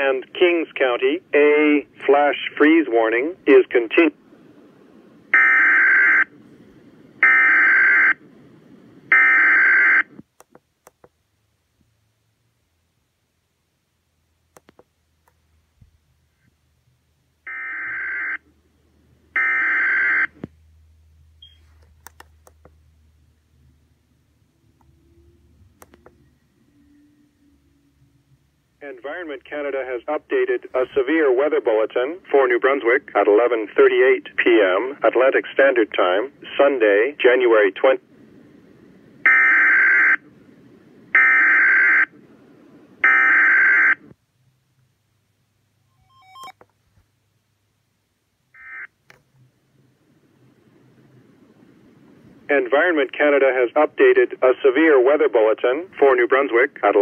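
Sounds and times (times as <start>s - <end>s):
faint radio hiss: 0.0s - 26.7s, 27.4s - 43.1s, 43.7s - 57.0s
harsh electronic tone bursts: 45.9s - 46.6s.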